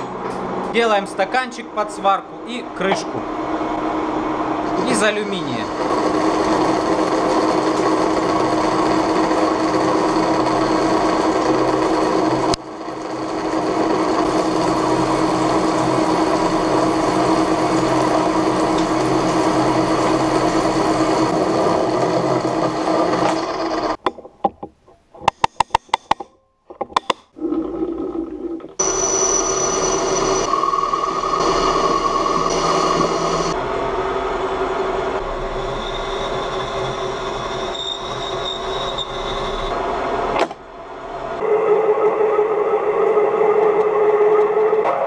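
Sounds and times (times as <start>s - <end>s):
metal lathe running: 2.4s - 24.0s, 28.8s - 40.3s.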